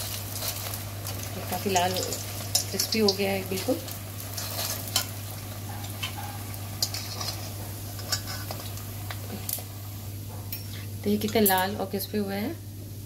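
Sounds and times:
oil sizzling: 0.0s - 12.3s
utensils clicking against pan: 1.6s - 3.7s, 6.8s - 9.6s.

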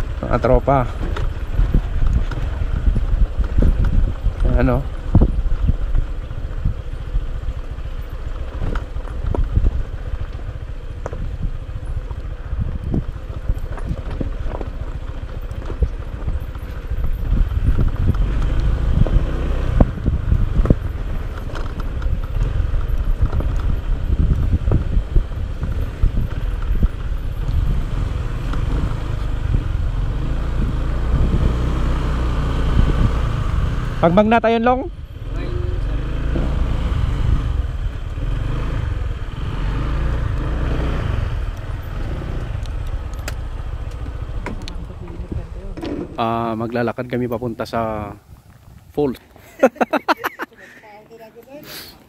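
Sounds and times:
motorcycle engine at low speed: 0.0s - 51.1s
motorcycle jolting over stones: 7.8s - 18.4s.

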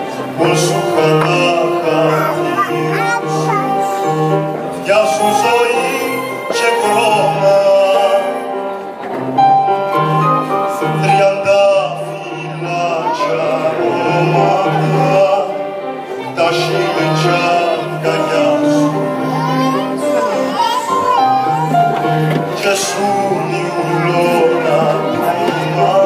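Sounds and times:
man singing into a microphone: 0.0s - 3.5s, 4.1s - 9.0s, 10.0s - 20.6s, 22.0s - 26.0s
mixed choir singing: 0.0s - 9.5s, 10.4s - 26.0s
piano accompaniment: 0.0s - 26.0s.

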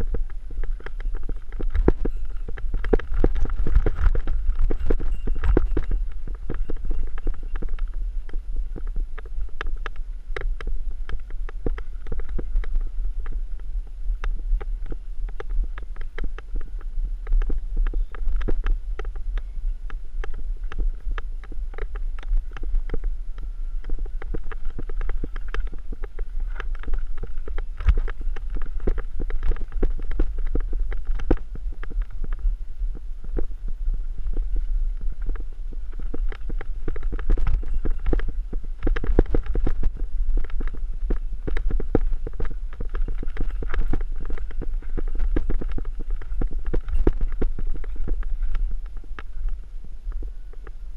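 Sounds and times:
small knocks and rattles: 0.0s - 13.4s
low rumble of tyre rolling: 0.0s - 50.9s.

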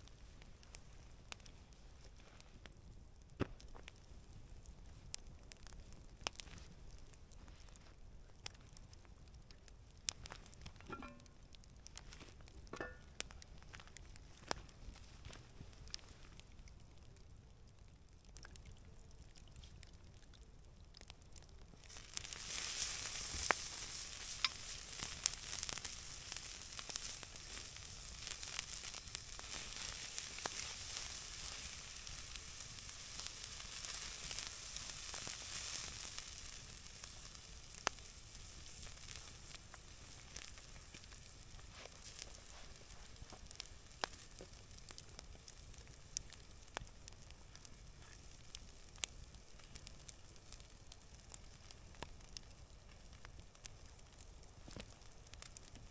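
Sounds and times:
meat sizzling on a grill: 21.8s - 46.2s.

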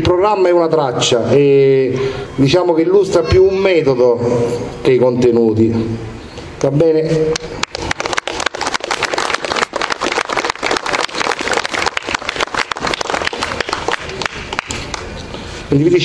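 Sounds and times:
crowd applauding: 7.4s - 15.2s.

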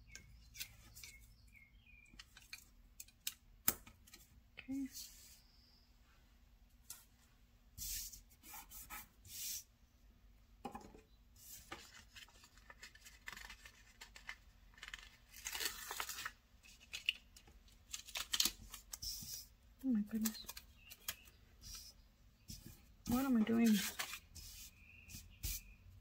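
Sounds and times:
paper rustling: 11.5s - 19.5s, 22.5s - 25.6s
stickers peeling: 12.6s - 21.9s.

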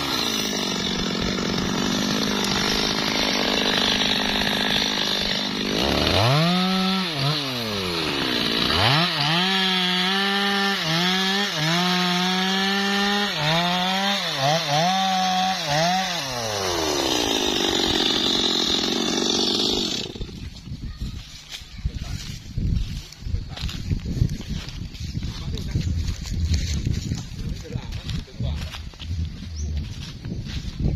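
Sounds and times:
chainsaw cutting through log: 0.0s - 20.6s.

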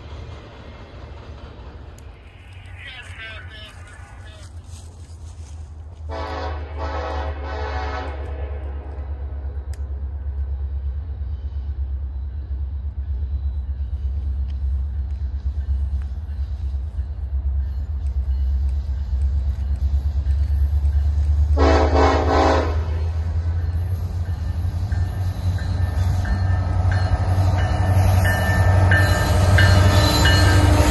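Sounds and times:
diesel locomotive engine rumble: 0.0s - 30.9s
train air horn blast: 6.1s - 8.8s, 21.6s - 23.1s.

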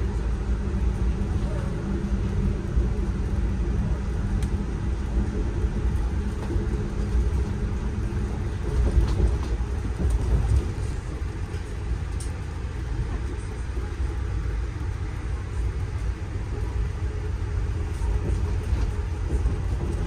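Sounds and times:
train wheels rumbling on rails: 0.0s - 20.0s
faint clicks: 4.4s - 4.6s.

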